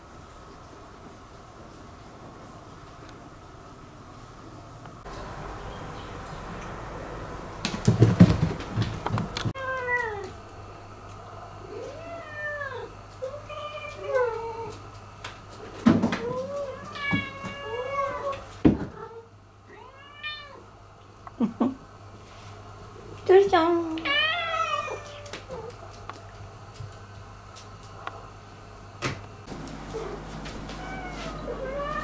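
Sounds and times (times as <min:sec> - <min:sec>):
knocks and thumps: 0:07.6 - 0:09.5
cats meowing: 0:09.6 - 0:10.4, 0:11.6 - 0:14.8, 0:16.2 - 0:18.5, 0:19.1 - 0:20.6, 0:24.0 - 0:25.7, 0:29.9 - 0:32.0.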